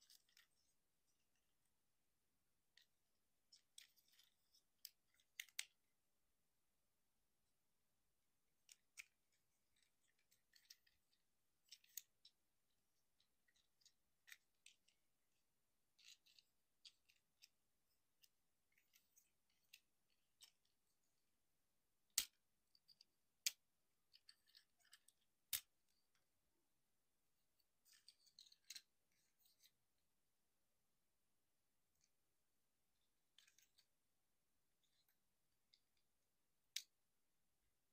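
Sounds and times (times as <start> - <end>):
plastic toy parts clicking: 3.5 - 5.8, 8.6 - 12.4, 13.2 - 15.1, 15.9 - 20.9, 22.1 - 26.2, 27.6 - 29.7.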